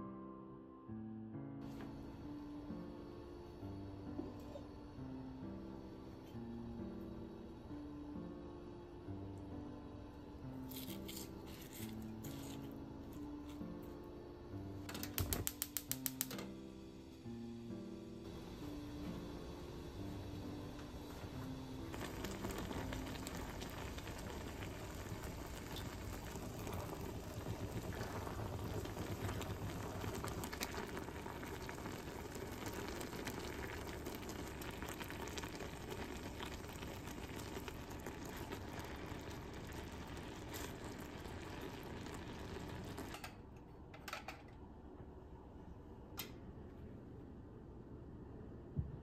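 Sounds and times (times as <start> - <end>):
pot boiling and bubbling: 1.6 - 14.0, 18.2 - 43.6.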